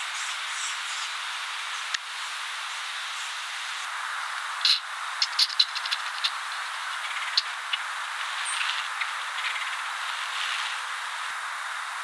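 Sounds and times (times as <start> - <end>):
insects hissing: 0.0 - 12.0.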